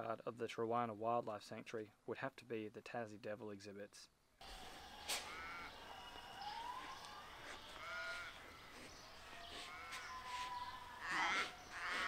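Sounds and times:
faint outdoor background: 0:00.0 - 0:12.0
animal calls rising and falling: 0:04.4 - 0:12.0.

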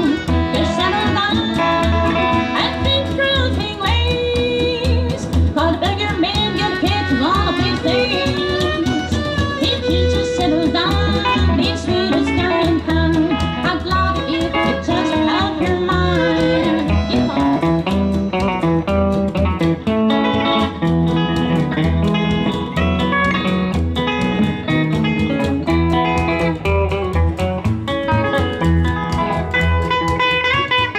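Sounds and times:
woman singing: 0:00.0 - 0:17.9
bass: 0:00.0 - 0:30.9
drum beat: 0:00.0 - 0:30.9
electric guitar: 0:00.0 - 0:30.9.

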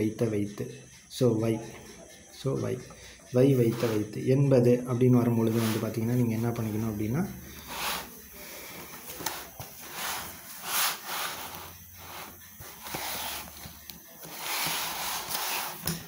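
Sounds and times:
book pages rustling: 0:08.7 - 0:16.0.

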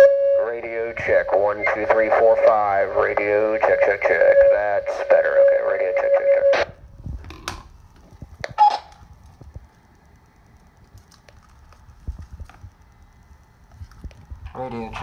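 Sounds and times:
radio audio from speaker: 0:00.0 - 0:06.7
faint steady whine: 0:00.0 - 0:15.0.

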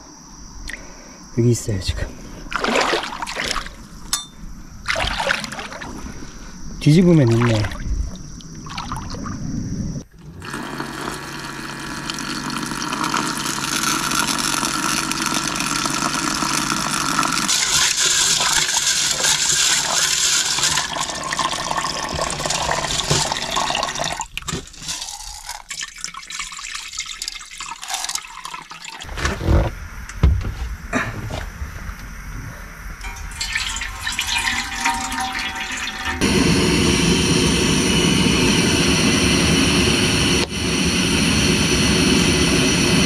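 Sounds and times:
water rushing and splashing: 0:02.5 - 0:03.8.

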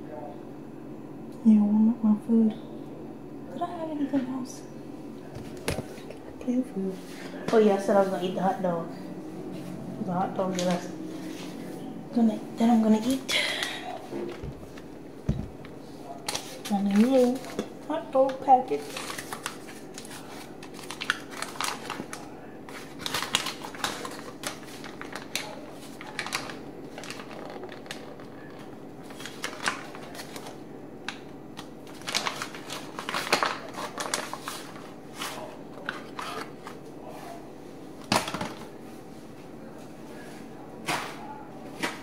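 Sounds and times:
foil paper wrapper crinkling: 0:15.6 - 0:37.4.

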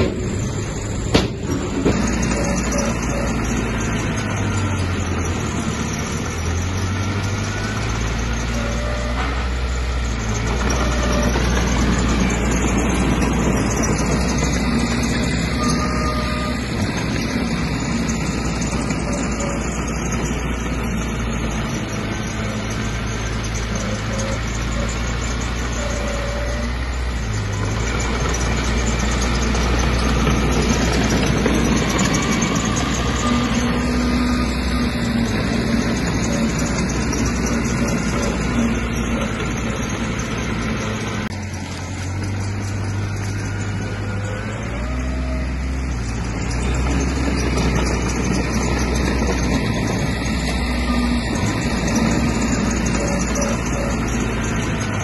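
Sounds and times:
bulldozer diesel engine running: 0:00.0 - 0:55.0.

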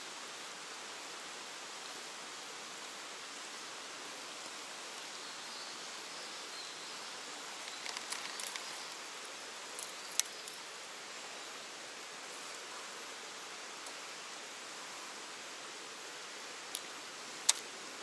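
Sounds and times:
stream water rushing: 0:07.0 - 0:18.0
small clicks and taps: 0:07.6 - 0:08.8.

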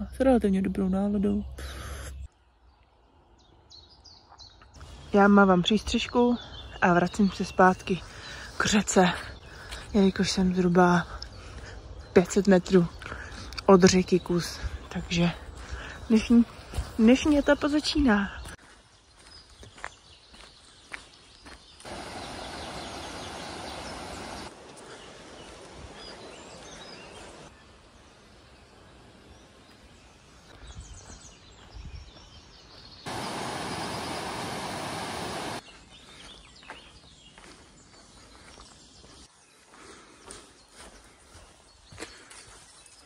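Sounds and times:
birds chirping: 0:00.0 - 0:43.0
footsteps on dirt path: 0:08.0 - 0:23.1, 0:29.4 - 0:43.0
steady rushing noise: 0:33.1 - 0:35.6.

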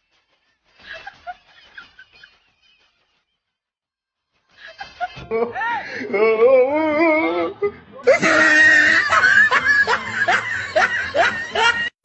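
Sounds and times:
people laughing and screaming: 0:04.6 - 0:12.0.

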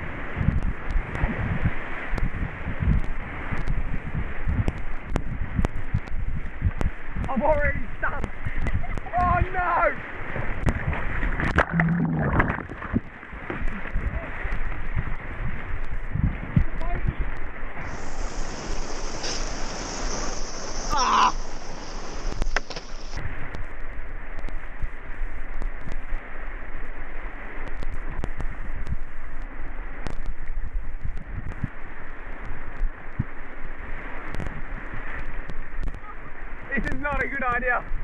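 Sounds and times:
water splashing against hull: 0:00.0 - 0:38.0
whitewater rushing and churning: 0:00.0 - 0:38.0.

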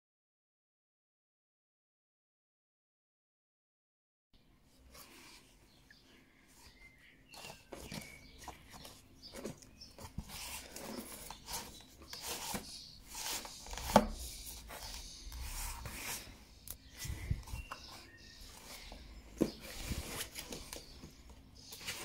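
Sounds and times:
hands rubbing cardboard: 0:06.6 - 0:22.0.

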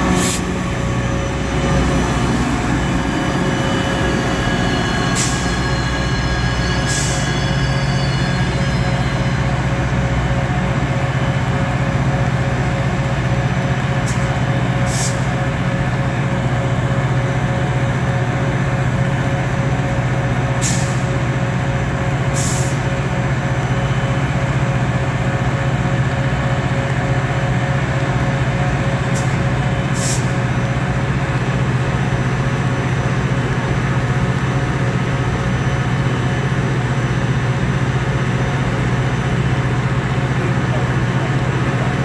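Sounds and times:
air brake hisses: 0:00.0 - 0:00.6, 0:05.1 - 0:08.0, 0:14.1 - 0:15.4, 0:20.6 - 0:21.2, 0:22.3 - 0:22.9, 0:29.1 - 0:30.4
diesel locomotive engine droning: 0:00.0 - 0:42.0.

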